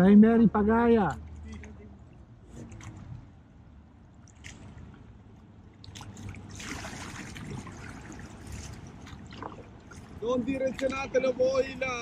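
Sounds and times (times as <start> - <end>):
paddles dipping into water: 4.2 - 11.4
paddle splash: 4.2 - 11.8
faint wash of water: 4.2 - 12.0.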